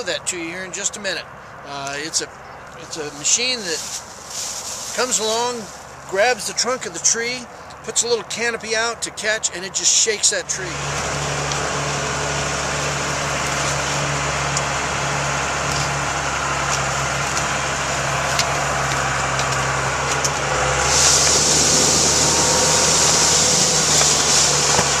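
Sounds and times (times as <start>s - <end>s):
harvester engine running: 0.0s - 25.0s
loud hiss: 20.5s - 25.0s.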